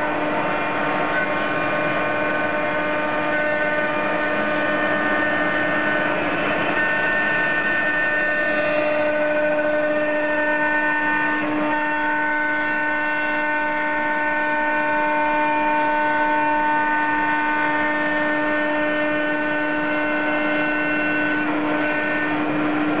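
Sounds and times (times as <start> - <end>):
router spindle whine: 0.0 - 23.0
wood cutting noise: 0.0 - 23.0.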